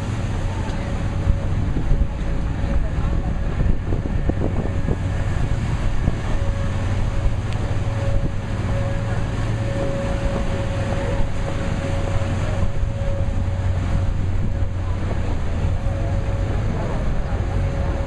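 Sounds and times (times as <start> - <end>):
boat engine hum: 0.0 - 18.0
wind rumbling on microphone: 0.0 - 18.0.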